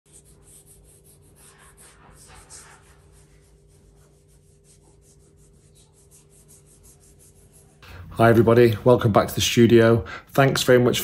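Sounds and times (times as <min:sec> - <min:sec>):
cotton swab scrubbing: 0:00.1 - 0:07.8
steady low hum: 0:00.1 - 0:11.0.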